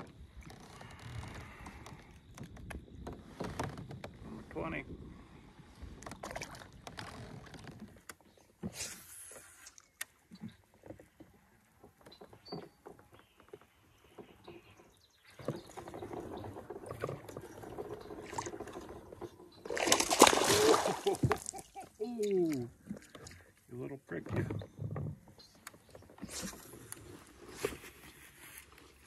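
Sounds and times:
gear knocks and clicks in kayak: 0:00.0 - 0:29.0
water lapping against hull: 0:00.0 - 0:29.0.

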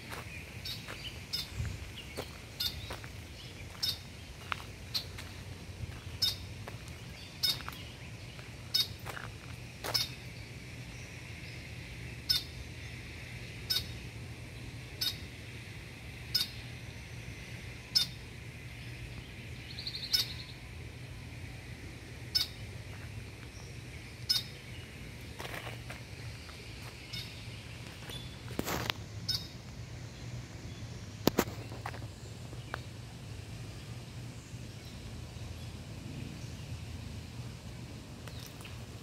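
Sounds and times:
bird calling: 0:00.0 - 0:05.3, 0:06.1 - 0:06.5, 0:07.3 - 0:07.8, 0:08.7 - 0:09.2, 0:09.9 - 0:10.2, 0:22.3 - 0:22.6, 0:24.2 - 0:24.6
steady high hiss: 0:00.0 - 0:39.0
bird trill: 0:06.2 - 0:06.4, 0:09.9 - 0:10.2, 0:12.3 - 0:12.5, 0:13.7 - 0:13.9, 0:15.0 - 0:15.2, 0:16.3 - 0:16.6, 0:17.9 - 0:18.2, 0:19.8 - 0:20.6, 0:22.3 - 0:22.6, 0:24.3 - 0:24.6.

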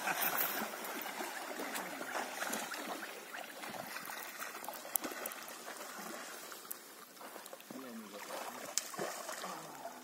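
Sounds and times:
horses wading through water: 0:00.0 - 0:10.0.

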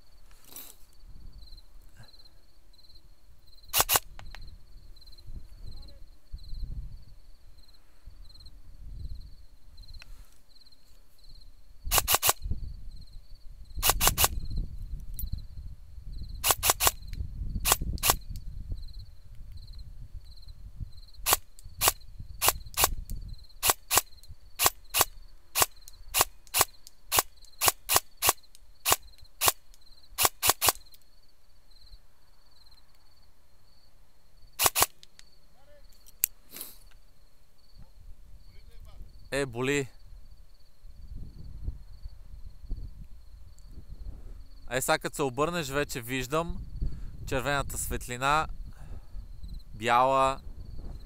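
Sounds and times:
airsoft gun shots: 0:03.7 - 0:04.1, 0:11.9 - 0:12.4, 0:13.8 - 0:14.4, 0:16.4 - 0:17.0, 0:30.2 - 0:30.8, 0:34.6 - 0:35.0.

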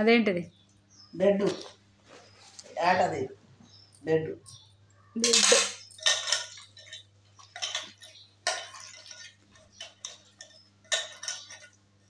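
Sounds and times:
scrapes and clinks in metal pot: 0:05.2 - 0:11.8.

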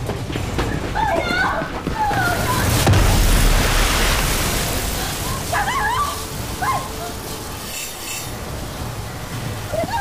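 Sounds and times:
high wavering squeals: 0:05.3 - 0:09.8.

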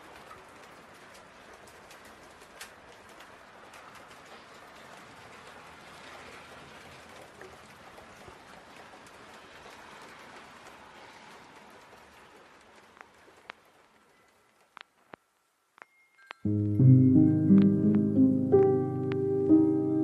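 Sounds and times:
outdoor ambient hiss: 0:00.0 - 0:20.0.

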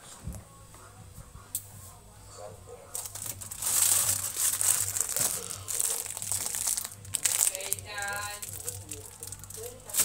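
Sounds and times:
candy wrapper crinkling: 0:02.9 - 0:10.0.

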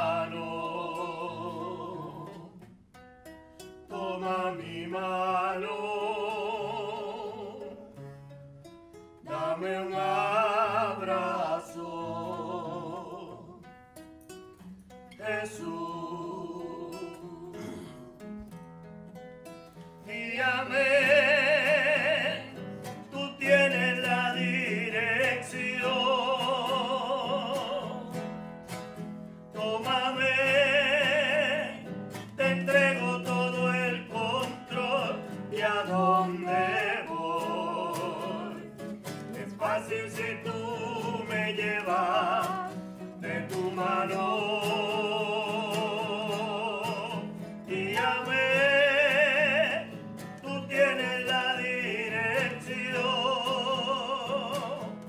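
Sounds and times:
person singing a hymn with vibrato: 0:00.0 - 0:02.5, 0:03.9 - 0:07.7, 0:09.3 - 0:13.6, 0:15.2 - 0:18.0, 0:32.4 - 0:38.7, 0:39.4 - 0:54.9.

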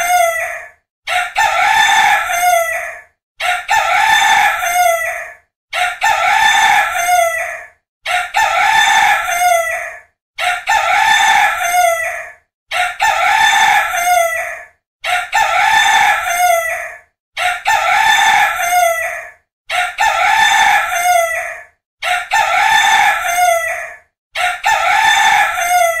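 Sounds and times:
rooster crowing: 0:01.2 - 0:02.9, 0:05.9 - 0:12.2, 0:12.8 - 0:14.5, 0:19.8 - 0:26.0.

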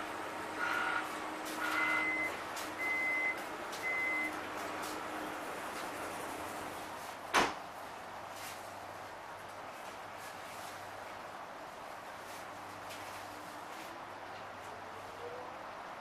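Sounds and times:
train humming: 0:00.0 - 0:07.1
door warning beeps: 0:01.6 - 0:04.4
train doors clunking shut: 0:07.3 - 0:07.6.

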